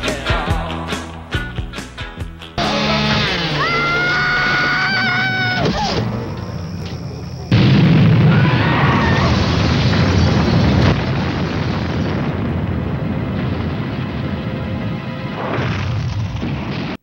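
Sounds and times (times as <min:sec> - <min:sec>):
loud explosion: 0:07.2 - 0:17.0.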